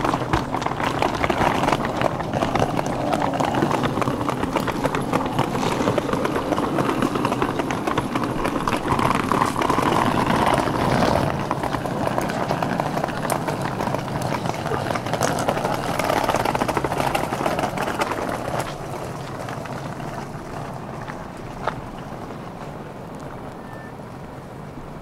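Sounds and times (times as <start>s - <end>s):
footsteps on pavement: 0.0s - 24.3s
rolling suitcase wheels clicking: 0.0s - 25.0s.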